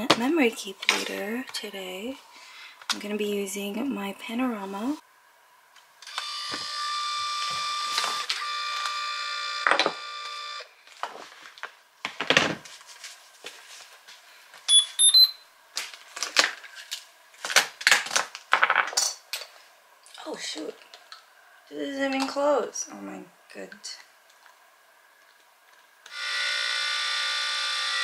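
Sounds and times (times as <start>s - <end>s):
rising electronic beep: 14.7s - 15.4s.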